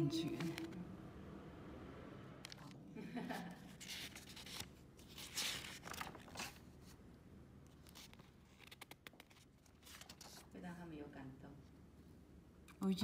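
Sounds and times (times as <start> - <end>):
paper rustling: 3.4 - 7.0, 7.7 - 10.5.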